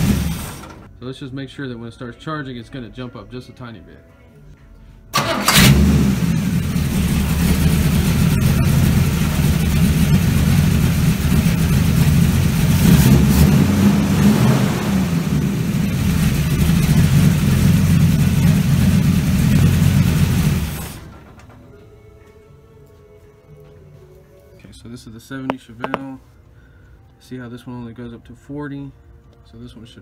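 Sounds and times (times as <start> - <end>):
car engine starting and idling: 0.0 - 0.9, 5.1 - 21.8.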